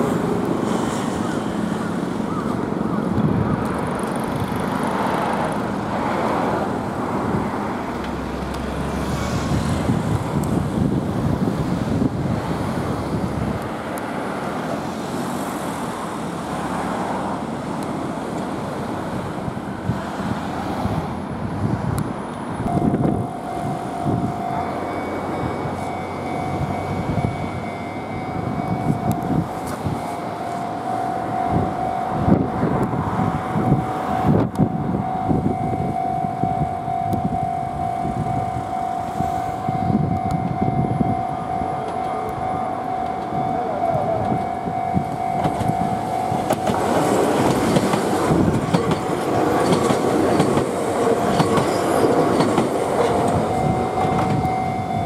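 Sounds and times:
cars passing: 0.0 - 55.0
level crossing bell ringing: 22.7 - 32.6, 33.5 - 47.8, 52.9 - 55.0.

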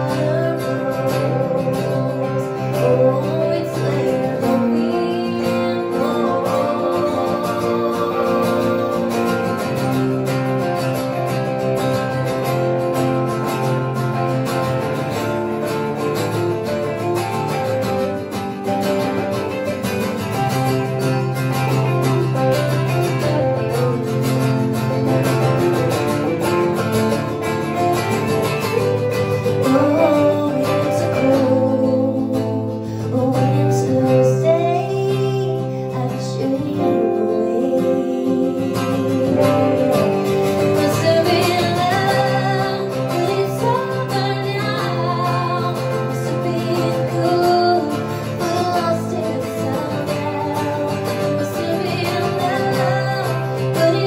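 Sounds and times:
woman singing a slow ballad: 0.0 - 10.4, 29.4 - 54.0
acoustic guitars playing: 0.0 - 54.0.

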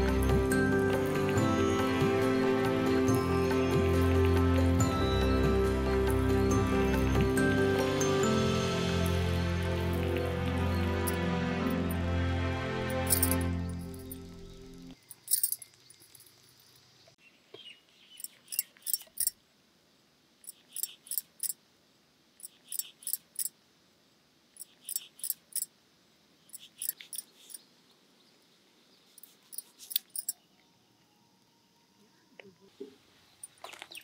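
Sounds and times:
small bird chirping: 13.5 - 19.4, 20.4 - 21.6, 22.4 - 23.5, 24.6 - 25.7, 26.4 - 32.2, 33.2 - 34.0.

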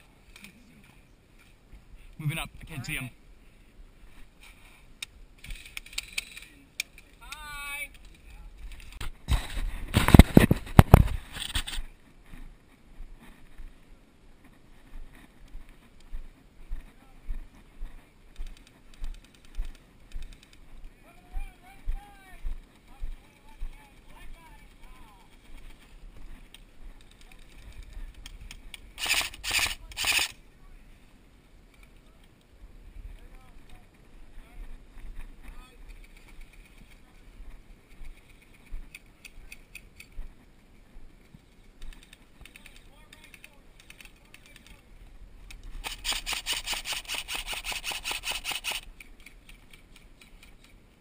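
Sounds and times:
airsoft gunfire bursts: 29.0 - 30.3, 45.8 - 48.8.

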